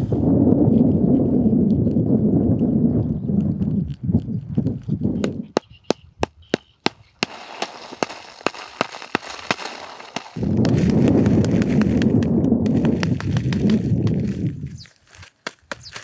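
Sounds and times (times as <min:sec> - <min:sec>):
wood fire crackling and popping: 0:00.9 - 0:16.0.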